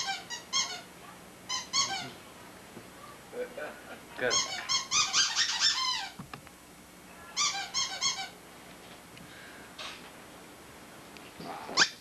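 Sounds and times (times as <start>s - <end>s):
rubber squeaky toy squeaks: 4.3s - 6.2s, 7.4s - 8.3s.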